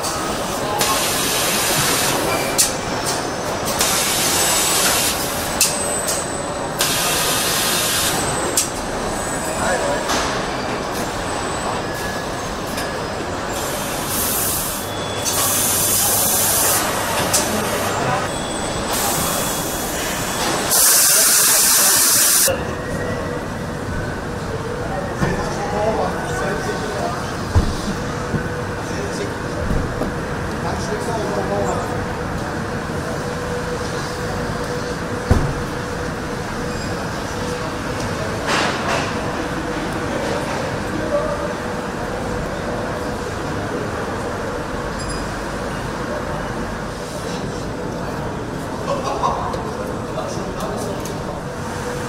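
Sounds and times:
factory machinery noise: 0.0s - 52.0s
compressed air hissing: 13.6s - 14.9s, 20.7s - 22.5s
thump: 35.3s - 35.6s.

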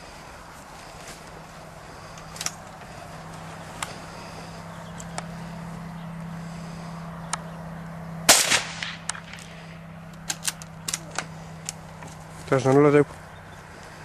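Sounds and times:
steady low hum: 0.0s - 14.0s
rifle shot with echo: 8.3s - 9.6s.

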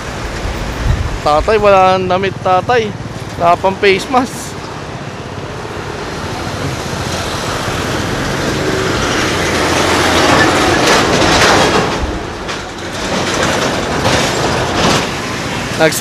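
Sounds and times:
busy road traffic: 0.0s - 16.0s
heavy vehicle rumble passing: 0.0s - 16.0s.

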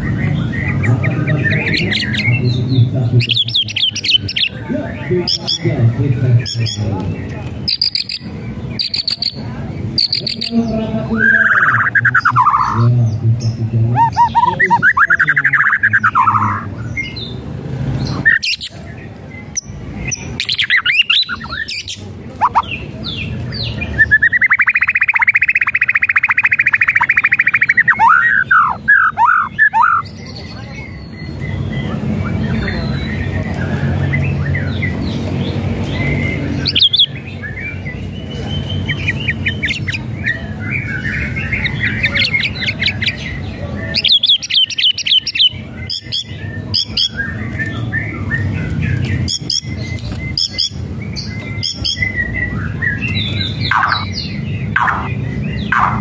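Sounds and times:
bird singing whistles: 23.9s - 30.0s.

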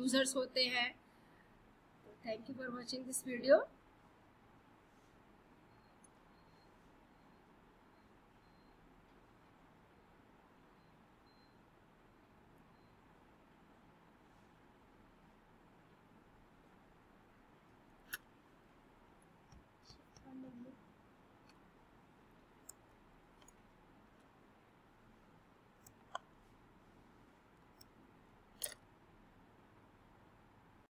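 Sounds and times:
computer mouse clicks: 17.9s - 18.3s, 22.6s - 24.3s, 25.8s - 26.3s, 28.6s - 28.8s.

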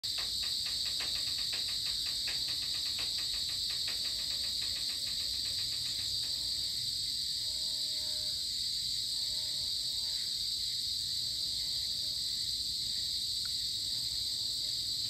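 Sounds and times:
rapid ticking call: 0.0s - 6.7s
insects shrilling: 0.0s - 8.4s.

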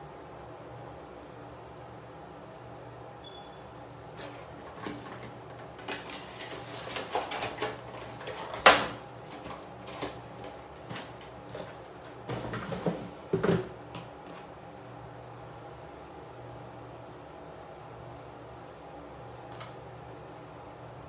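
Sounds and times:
items clattering: 4.2s - 14.5s.

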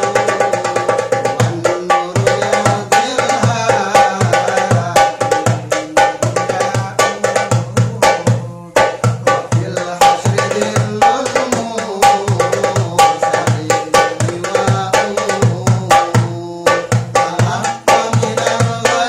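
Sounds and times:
hand drum rhythm: 0.0s - 19.0s.

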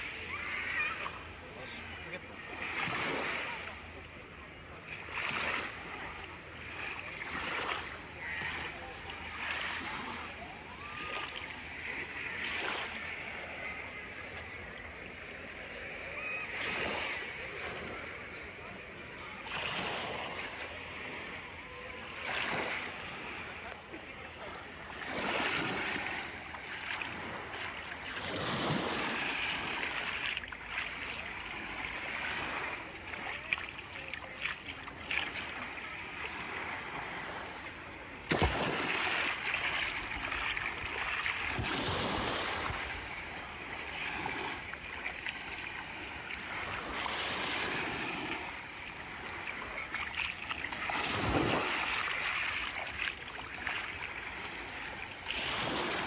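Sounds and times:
small waves breaking on beach: 0.0s - 56.0s.

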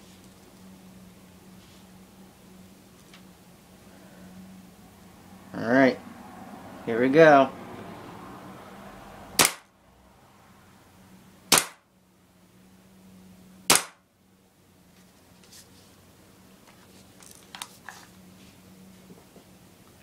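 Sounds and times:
airsoft pistol shots: 9.4s - 9.7s, 11.5s - 11.8s, 13.7s - 14.0s.

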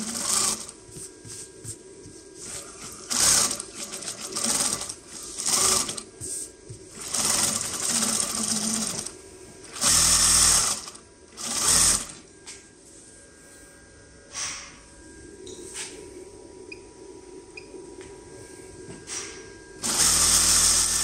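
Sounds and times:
sewing machine stitching: 0.0s - 0.7s, 3.0s - 6.0s, 7.0s - 9.1s, 9.7s - 12.2s, 19.8s - 21.0s.

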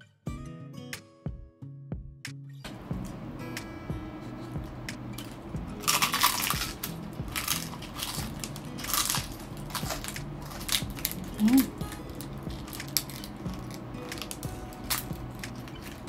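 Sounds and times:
crunchy food chewing: 5.2s - 16.0s.

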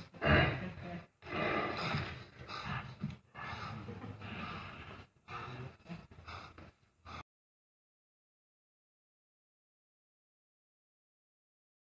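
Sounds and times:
heavy breathing and snorts: 0.0s - 7.2s.

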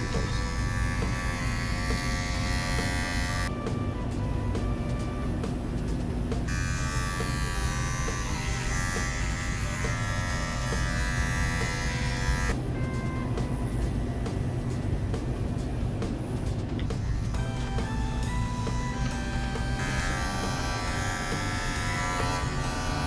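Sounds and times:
electric trimmer buzzing: 0.0s - 3.5s, 6.4s - 12.6s, 16.8s - 23.0s.

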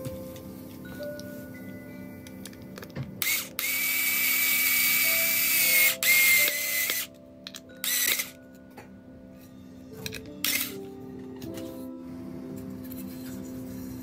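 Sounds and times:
cordless screwdriver whine: 3.2s - 7.1s, 7.8s - 8.4s, 10.4s - 10.8s.

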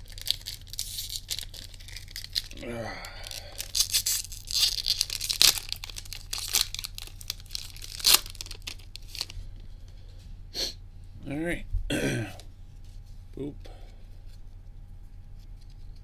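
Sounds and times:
foil wrapper crinkling and tearing: 0.0s - 9.4s
quiet rustling: 11.0s - 16.0s.

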